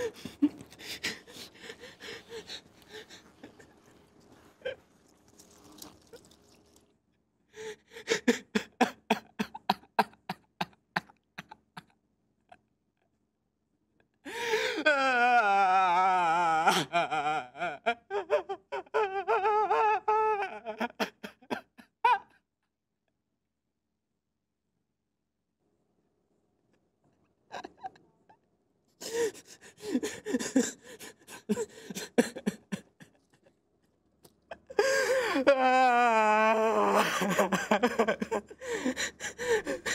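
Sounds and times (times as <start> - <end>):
man laughing breathily: 0.0 - 3.9, 7.6 - 11.9, 29.0 - 33.5, 36.6 - 39.9
man sobbing: 0.0 - 4.0, 7.6 - 12.0, 14.3 - 22.4, 29.0 - 33.5, 34.5 - 39.9.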